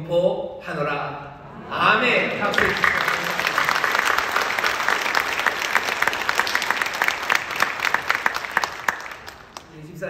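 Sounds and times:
crowd applauding: 2.4 - 9.8.

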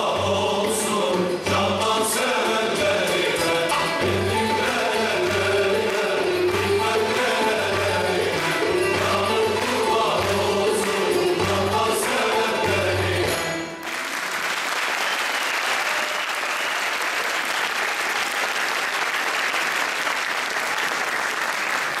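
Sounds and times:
men's choir singing folk music: 0.0 - 13.8
audience applause: 4.1 - 13.0, 13.7 - 22.0.

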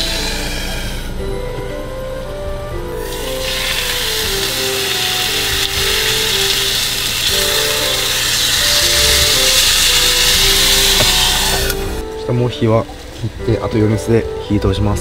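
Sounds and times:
soft background music: 0.0 - 15.0
steak sizzling in frying pan: 3.0 - 12.0.

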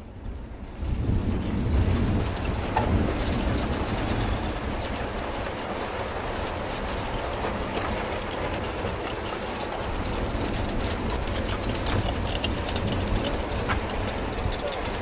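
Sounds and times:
loud rumbling and rattling: 0.0 - 15.0
rapid sharp clicks and knocks: 10.8 - 15.0.

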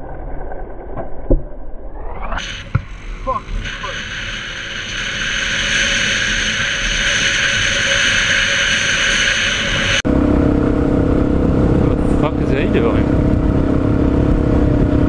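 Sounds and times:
motorbike engine at speed: 2.4 - 15.0
motorbike engine low hum: 2.5 - 15.0
wind noise on helmet: 13.1 - 15.0.

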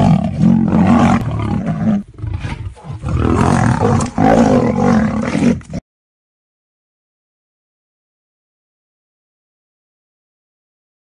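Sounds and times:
big cat roaring and snarling: 0.0 - 5.8.

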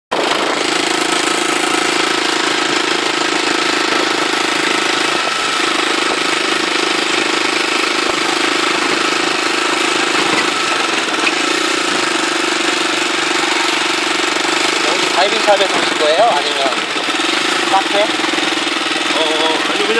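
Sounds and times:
motorcycle engine running: 0.1 - 19.9.

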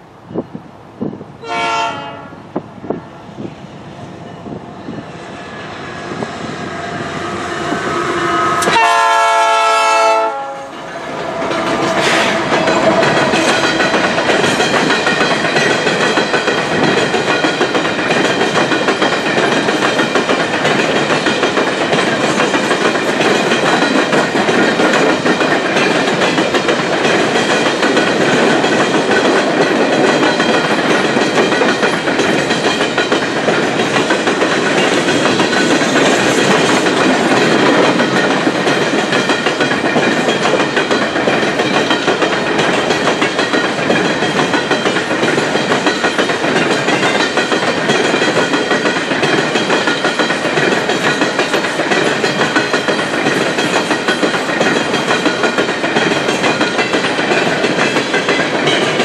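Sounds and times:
train cars rolling clickety-clack: 0.0 - 59.0
diesel locomotive horn blasts: 1.4 - 2.4, 7.1 - 14.0.

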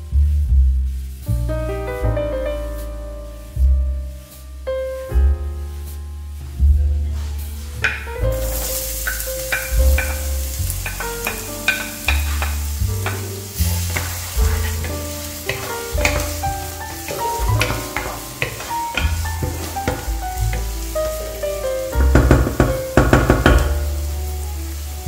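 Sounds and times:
background music with piano and bass: 0.0 - 25.0
onion sizzling in hot oil: 0.0 - 25.0
wooden spoon stirring: 7.8 - 23.7.

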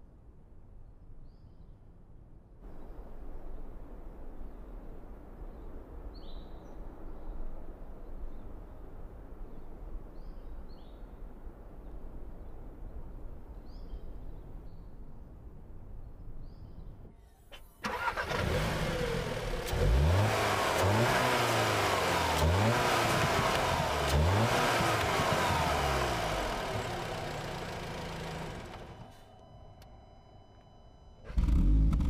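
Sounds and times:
car engine starting: 17.4 - 29.9, 31.3 - 32.0
engine revving: 17.8 - 29.2, 31.3 - 32.0.

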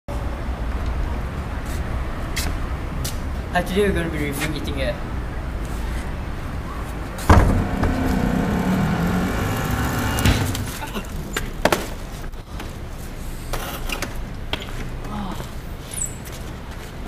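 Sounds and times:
motorcycle engine revving: 7.2 - 11.7
sharp knocks: 7.2 - 11.9.

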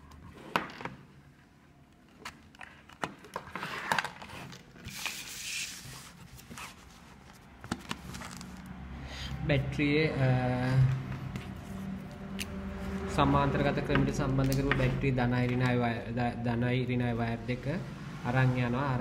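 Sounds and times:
paper rustling: 2.2 - 8.6.

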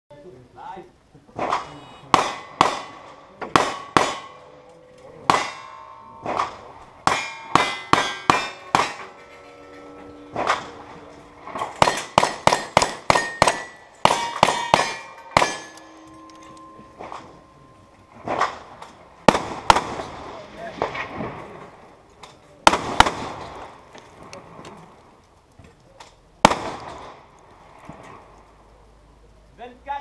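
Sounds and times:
bullets clanging on steel targets: 3.6 - 19.0.

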